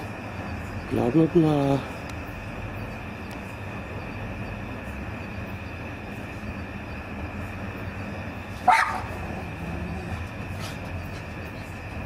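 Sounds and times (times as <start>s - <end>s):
low hum: 0.0s - 12.0s
dog bark: 8.6s - 9.2s.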